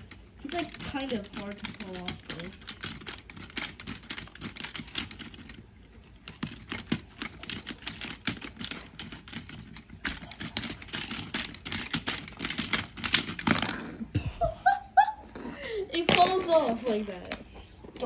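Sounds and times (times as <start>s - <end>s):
plastic toy bricks clicking: 0.0s - 5.6s, 6.2s - 13.9s.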